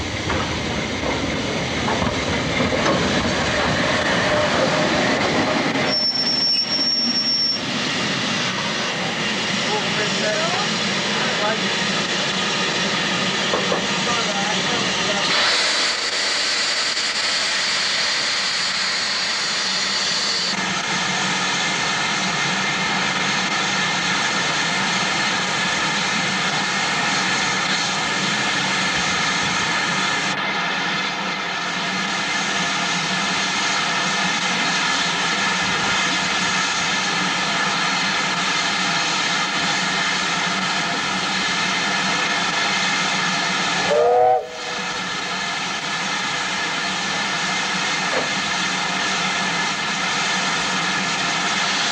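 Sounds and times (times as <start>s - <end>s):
steam hissing from locomotive: 0.0s - 51.9s.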